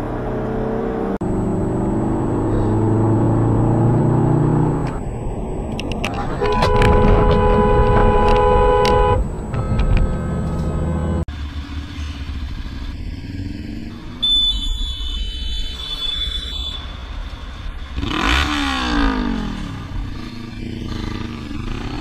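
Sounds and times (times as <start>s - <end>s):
motorcycle engine: 0.0s - 15.2s, 16.8s - 22.0s
car road and engine noise: 0.0s - 22.0s
wind noise: 4.7s - 10.8s.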